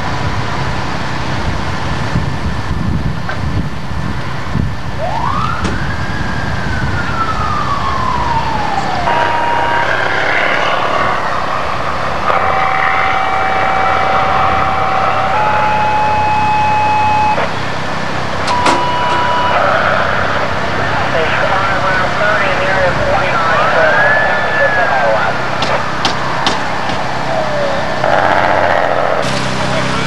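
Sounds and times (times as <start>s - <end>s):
electronic alert tones: 12.5s - 17.5s, 18.5s - 20.2s
siren winding: 18.5s - 19.6s.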